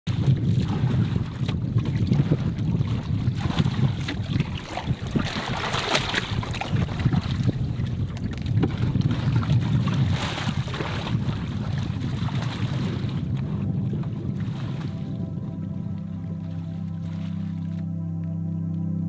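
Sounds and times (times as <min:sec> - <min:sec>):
outboard motor running: 0:00.1 - 0:19.0
wind on microphone: 0:00.1 - 0:19.0.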